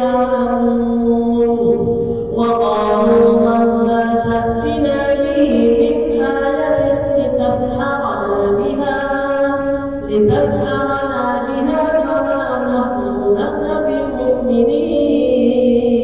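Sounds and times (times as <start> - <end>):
person chanting melodically: 8.1 - 9.1.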